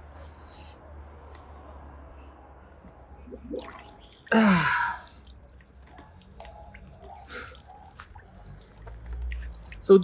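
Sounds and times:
water dripping: 0:03.2 - 0:10.0
water splashing and streaming: 0:03.2 - 0:10.0.

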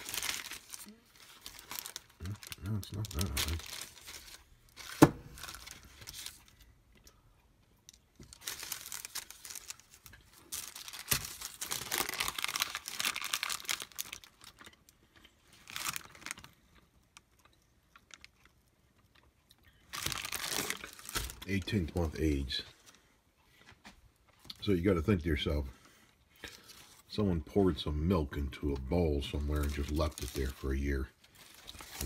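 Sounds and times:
paper crinkling: 0:00.0 - 0:06.7, 0:08.2 - 0:14.7, 0:19.9 - 0:23.0, 0:29.3 - 0:32.0.

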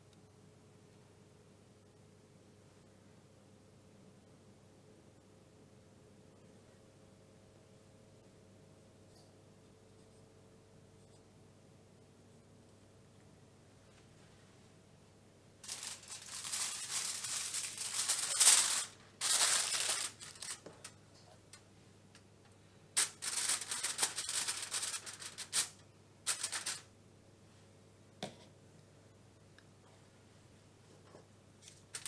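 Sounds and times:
aluminium foil crinkling: 0:15.6 - 0:21.6, 0:23.0 - 0:26.9, 0:31.6 - 0:32.0.

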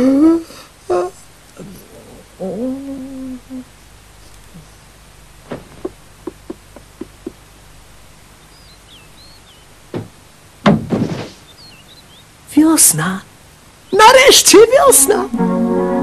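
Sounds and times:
faint high bird chirps: 0:08.4 - 0:09.8, 0:11.4 - 0:12.4
single knock: 0:09.9 - 0:11.3.

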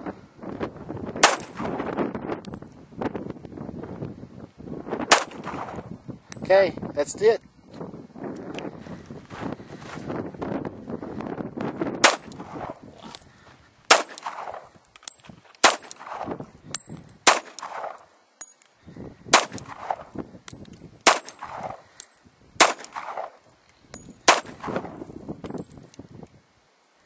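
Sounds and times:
handgun shots with echo: 0:01.2 - 0:01.7, 0:05.1 - 0:05.8, 0:12.0 - 0:12.7, 0:13.9 - 0:14.6, 0:15.6 - 0:16.3, 0:17.2 - 0:18.0, 0:21.0 - 0:21.8, 0:22.6 - 0:23.4, 0:24.3 - 0:24.9.

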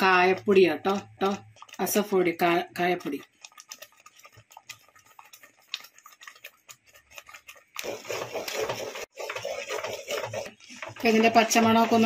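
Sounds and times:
wooden spoon scraping clay pot: 0:00.0 - 0:12.0.

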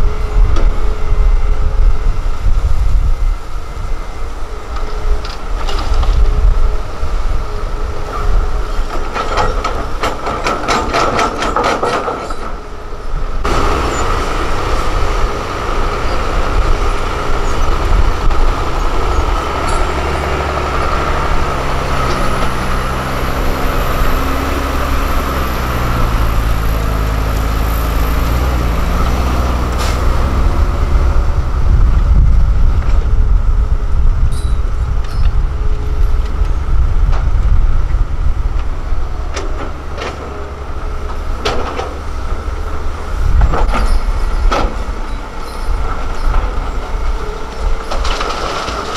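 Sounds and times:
dump truck diesel engine pulling away: 0:12.3 - 0:48.9.

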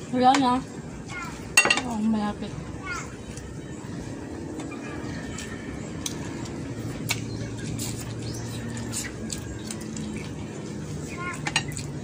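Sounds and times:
chewing and lip-smacking: 0:04.6 - 0:12.0.

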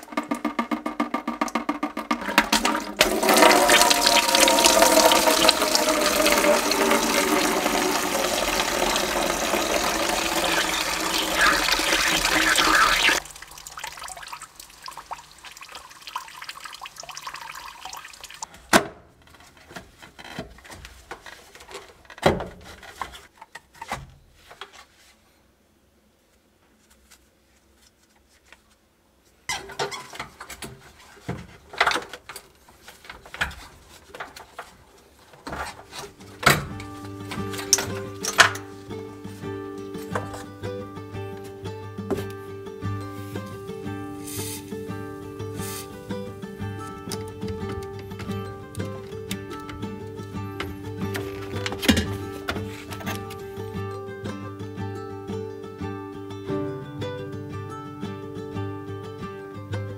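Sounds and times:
sharp knocks: 0:00.0 - 0:03.1
liquid gushing and splashing: 0:02.6 - 0:18.5.

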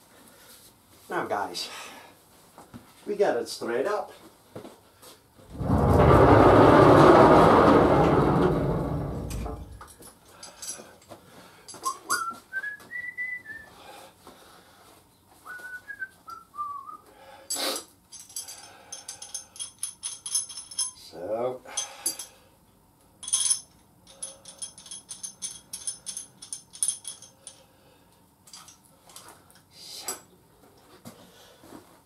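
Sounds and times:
loud rushing noise: 0:05.5 - 0:09.8
light clinks: 0:09.3 - 0:11.1, 0:17.5 - 0:21.1, 0:21.7 - 0:22.4, 0:23.2 - 0:27.7
man whistling: 0:11.8 - 0:13.7, 0:15.5 - 0:17.1.

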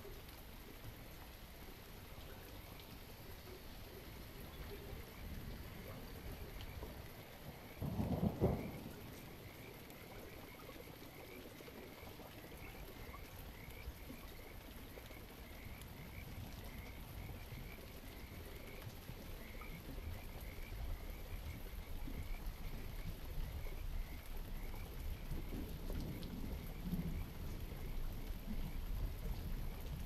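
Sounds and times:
rain: 0:00.0 - 0:30.0
thunder clap and rumble: 0:07.8 - 0:09.6.

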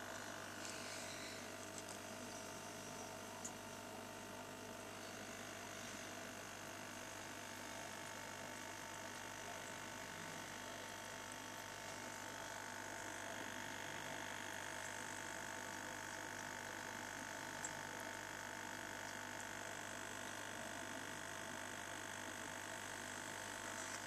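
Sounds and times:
aquarium air pump humming: 0:00.0 - 0:24.0
small tick: 0:03.4 - 0:03.6.

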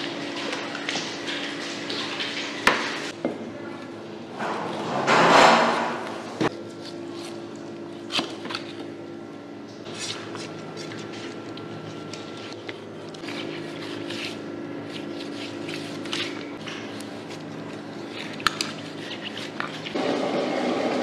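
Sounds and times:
knife scraping wet meat: 0:09.9 - 0:20.0.

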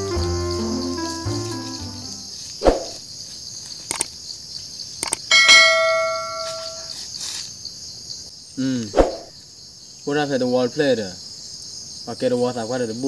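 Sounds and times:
high insect chirring: 0:00.0 - 0:12.1.

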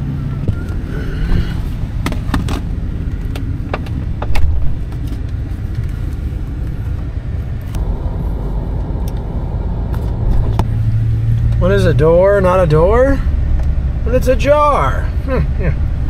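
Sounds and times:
pickup engine rumble: 0:00.0 - 0:16.0.

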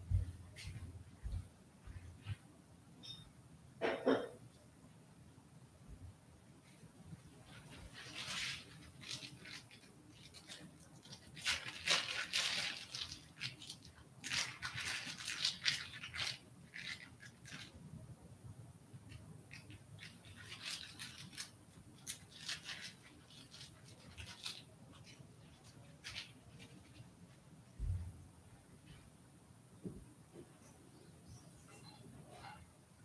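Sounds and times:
rustling and scratching: 0:06.6 - 0:18.0, 0:19.0 - 0:28.2, 0:30.3 - 0:32.8.

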